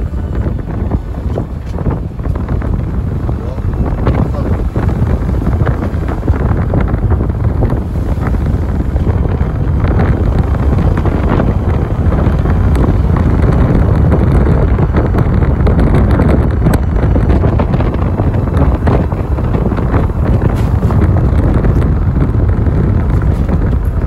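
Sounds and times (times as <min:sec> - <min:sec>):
vehicle noise: 0:00.0 - 0:24.0
wind buffeting microphone: 0:00.0 - 0:24.0.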